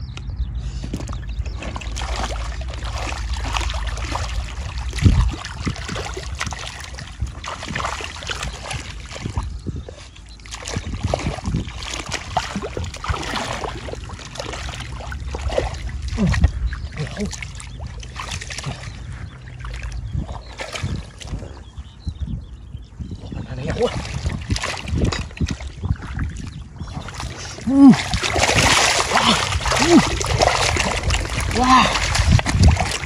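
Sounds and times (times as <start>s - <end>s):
low rumble: 0.0s - 33.0s
water sloshing and splashing: 0.8s - 22.2s, 22.8s - 33.0s.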